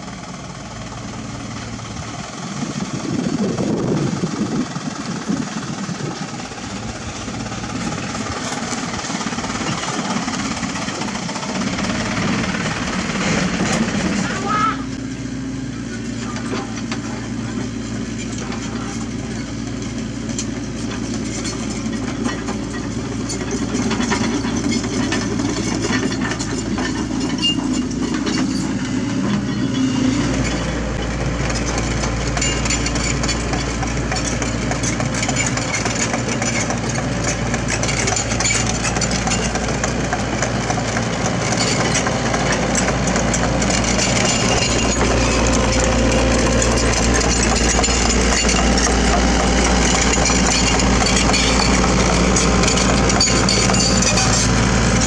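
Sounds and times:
excavator diesel engine under load: 0.0 - 55.0
steel tracks clattering: 22.2 - 55.0.

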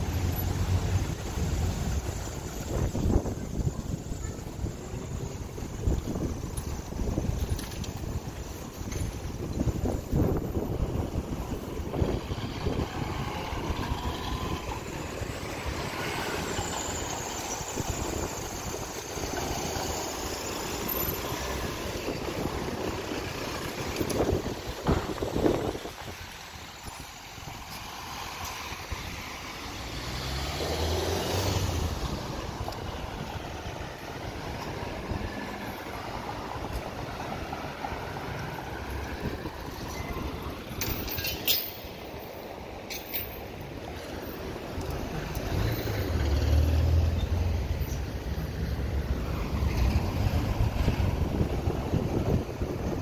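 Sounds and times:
vehicle road noise rumble: 0.0 - 53.0
wind on microphone: 0.6 - 16.0, 21.4 - 27.8, 48.8 - 53.0.

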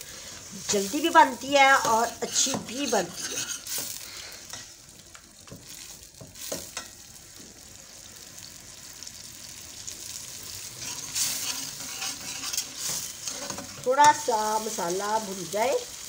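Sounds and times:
masala sizzling in hot oil: 0.0 - 16.0
steel ladle scraping and knocking: 1.8 - 3.7, 10.8 - 13.8.

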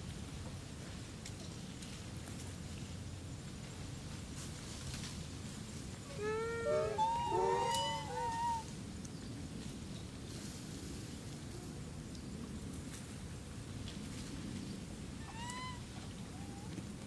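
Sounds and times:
outdoor background hiss: 0.0 - 17.0
macaques cooing: 6.1 - 8.6.

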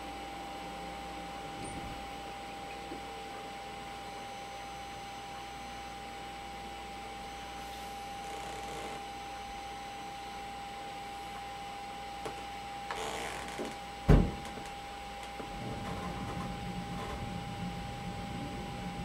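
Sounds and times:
computer fan whine: 0.0 - 19.0
single thump: 14.1 - 14.6.

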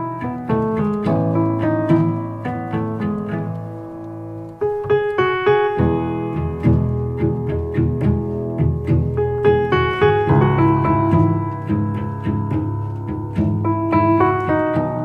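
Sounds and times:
piano music over low bass: 0.0 - 15.0.

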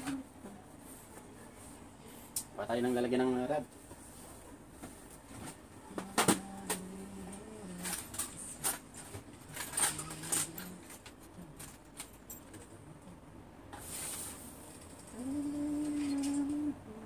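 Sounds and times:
faint low hum: 0.0 - 17.0
small items clicking and knocking: 7.7 - 12.7.

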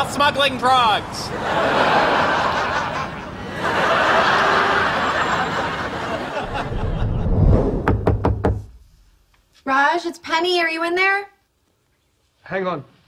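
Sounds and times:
audience laughing: 1.3 - 7.5.

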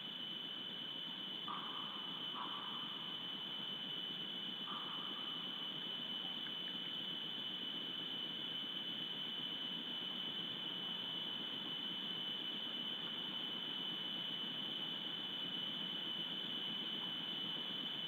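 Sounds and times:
high-pitched electronic whine: 0.0 - 18.0.

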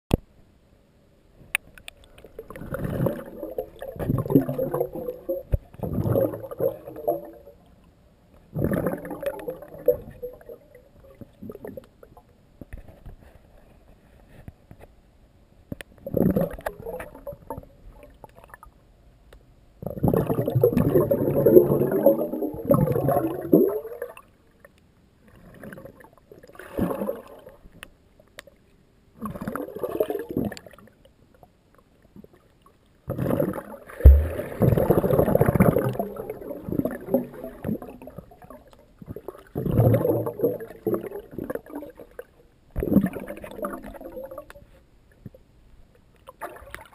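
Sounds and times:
underwater bubbling and rushing water: 2.0 - 7.8, 8.5 - 12.3, 16.0 - 18.7, 19.8 - 24.4, 25.2 - 27.8, 29.2 - 31.1, 32.0 - 45.3, 46.2 - 46.9
exhaled breath bubbles underwater: 2.3 - 7.4, 8.5 - 11.8, 19.8 - 24.2, 33.1 - 42.2.

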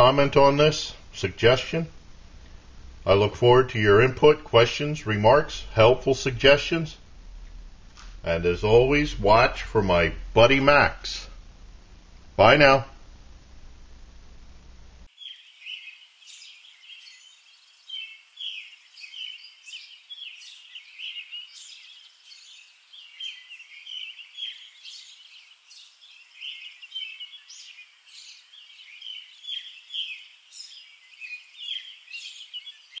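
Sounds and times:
songbirds chirping and singing: 8.3 - 11.3, 15.1 - 33.0.

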